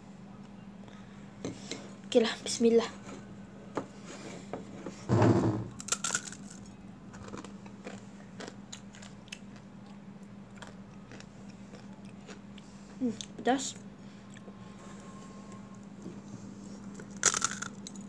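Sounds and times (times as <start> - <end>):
crunchy snack bitten and chewed: 5.7 - 12.6, 17.0 - 18.0.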